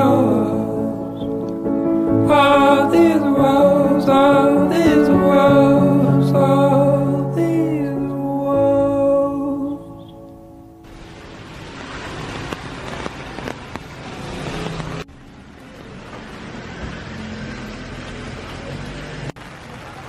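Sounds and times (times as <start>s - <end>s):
traffic hissing on wet road: 10.9s - 20.0s.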